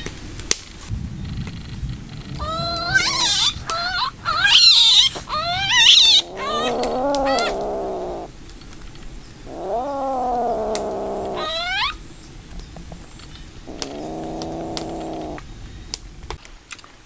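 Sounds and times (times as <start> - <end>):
kitten yowling: 2.4 - 8.3, 9.5 - 12.0, 13.7 - 15.4.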